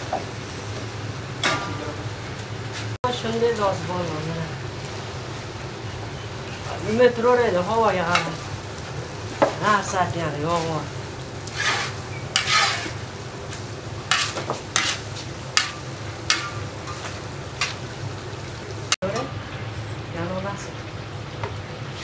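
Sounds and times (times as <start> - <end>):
broth sizzling: 0.0 - 22.0
metal skimmer scraping rice: 11.5 - 13.0, 14.1 - 15.0.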